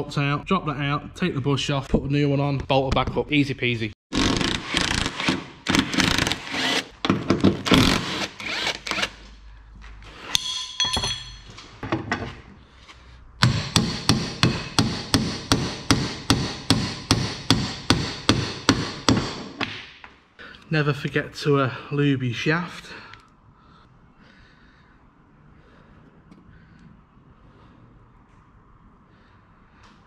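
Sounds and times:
hammer striking steel bar: 0:10.3 - 0:11.5, 0:13.4 - 0:19.9.

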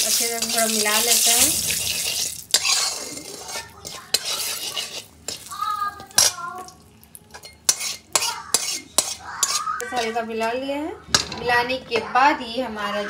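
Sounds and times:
spatula scraping metal pan: 0:00.0 - 0:06.5, 0:07.3 - 0:10.6
oil sizzling: 0:00.0 - 0:10.3.

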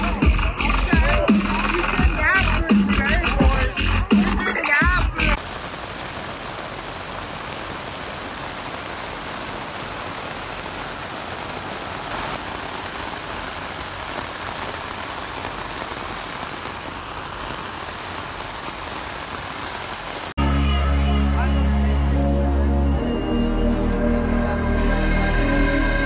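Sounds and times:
rain on a tent: 0:04.6 - 0:20.4.

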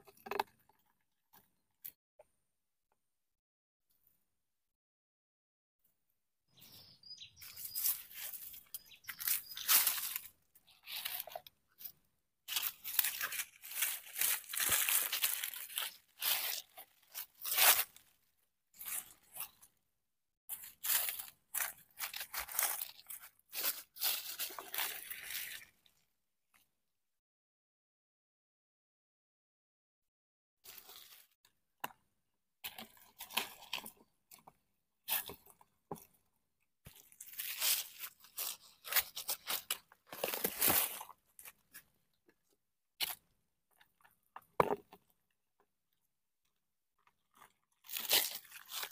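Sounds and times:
dry leaves crunching and rustling: 0:07.4 - 0:11.4, 0:12.5 - 0:18.0, 0:20.5 - 0:25.6, 0:36.9 - 0:41.1, 0:47.8 - 0:48.9.

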